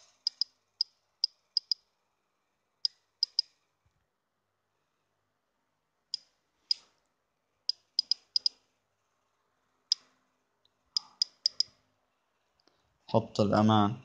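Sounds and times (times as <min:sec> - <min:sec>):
phone keyboard clicks: 0:07.7 - 0:08.6, 0:11.0 - 0:11.7.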